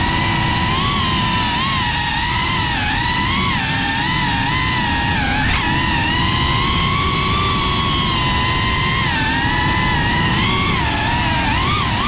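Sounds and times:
propeller wash and wind: 0:00.0 - 0:12.0
quadcopter motors whining: 0:00.0 - 0:12.0.

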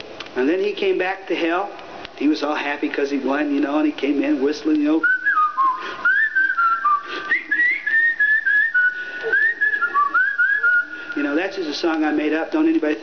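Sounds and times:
man whistling a tune: 0:05.0 - 0:11.3.

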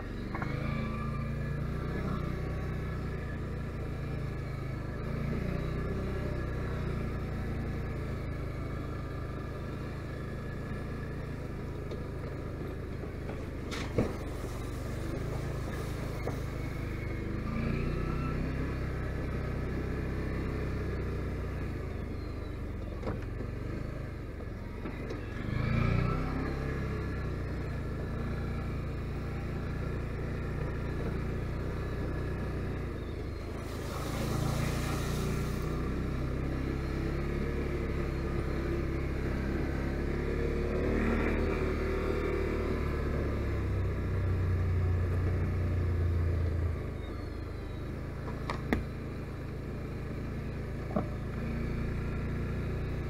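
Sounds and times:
atv engine running: 0:00.0 - 0:53.0
brief hiss: 0:33.6 - 0:35.8.

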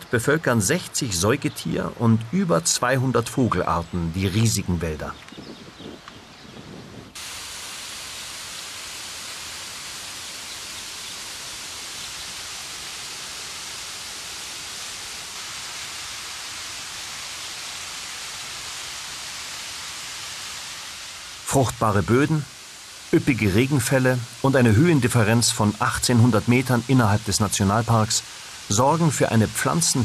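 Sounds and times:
water rushing over rocks: 0:07.2 - 0:30.0.

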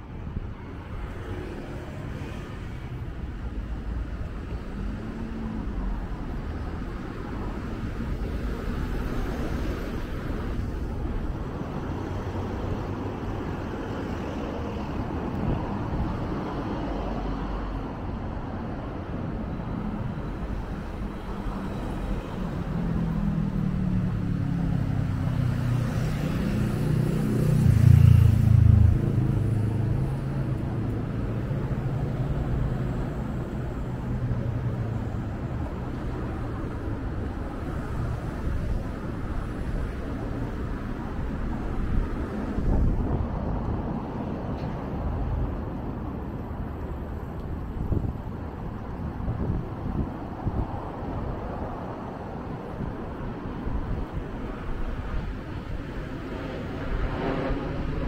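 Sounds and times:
passing traffic hum: 0:00.0 - 0:58.0
large vehicle engine: 0:18.8 - 0:47.3.

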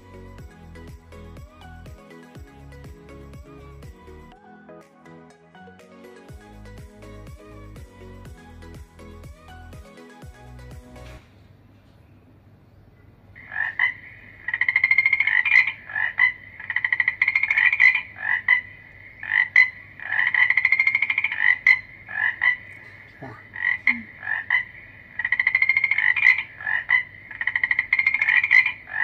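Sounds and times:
recorded frog calls through speaker: 0:13.4 - 0:29.0.

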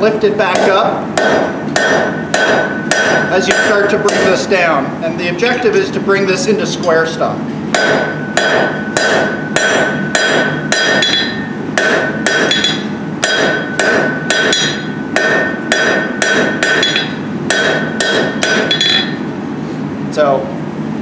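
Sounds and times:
anvil ringing: 0:00.5 - 0:04.5, 0:07.8 - 0:19.3
hammer striking hot steel: 0:00.5 - 0:04.7, 0:07.7 - 0:19.3.

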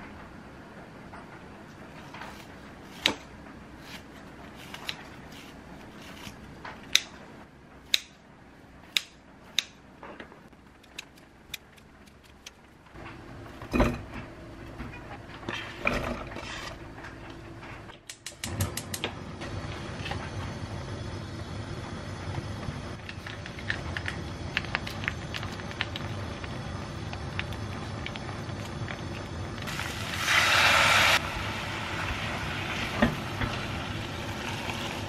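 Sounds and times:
scissors snipping food: 0:10.8 - 0:12.6.

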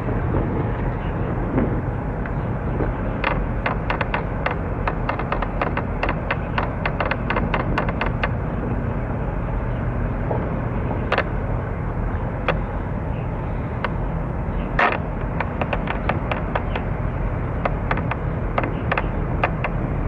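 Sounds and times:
low rumble of background noise: 0:00.0 - 0:20.0
sharp clicks: 0:02.2 - 0:08.4, 0:14.6 - 0:19.8.

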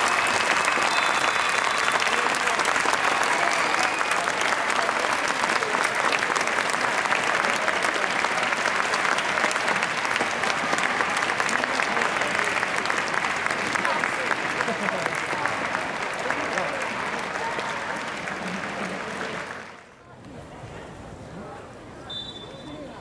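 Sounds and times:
crowd applauding: 0:00.0 - 0:20.0.

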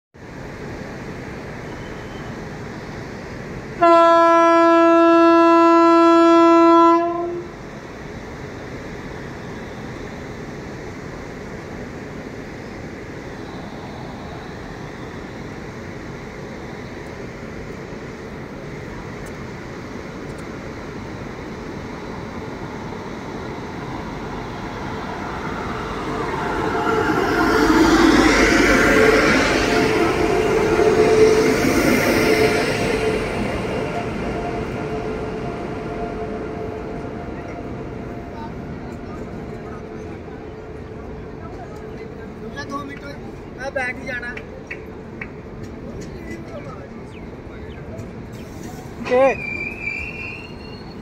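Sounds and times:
locomotive horn blast: 0:03.8 - 0:07.5
electric locomotive running: 0:08.4 - 0:51.0.

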